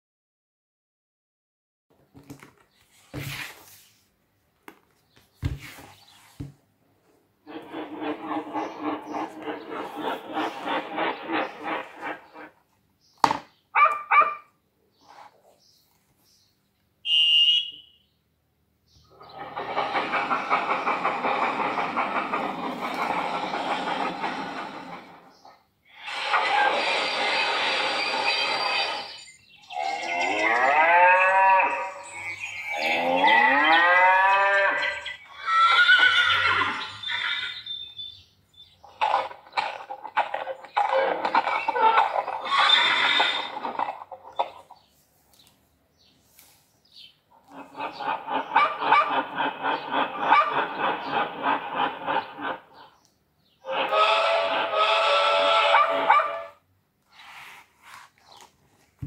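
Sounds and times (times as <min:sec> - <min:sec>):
dog barking: 0:13.8 - 0:14.5, 0:48.5 - 0:49.2, 0:50.2 - 0:50.8, 0:55.7 - 0:56.6
shrill whistle: 0:17.0 - 0:18.1.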